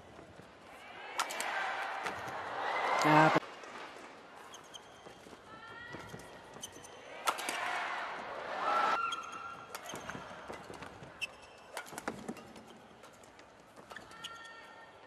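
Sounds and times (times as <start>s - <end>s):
crowd noise: 0.0s - 4.6s, 6.9s - 9.2s
shoes squeaking on court: 4.4s - 7.1s, 9.0s - 14.6s.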